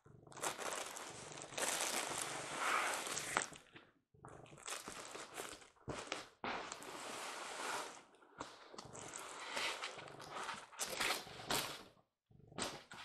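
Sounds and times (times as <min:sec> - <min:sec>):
cardboard and packing rustling: 0:00.4 - 0:03.5.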